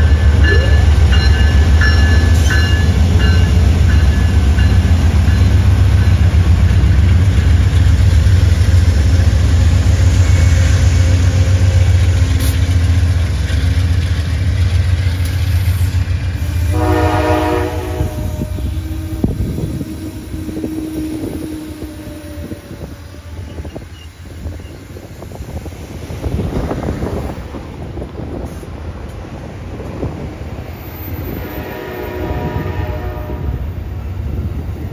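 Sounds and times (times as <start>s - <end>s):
train wheels clicking over rail joints: 0.0s - 16.8s
diesel locomotive engine rumble: 0.0s - 34.9s
train horn blast: 16.4s - 23.8s, 31.4s - 33.9s.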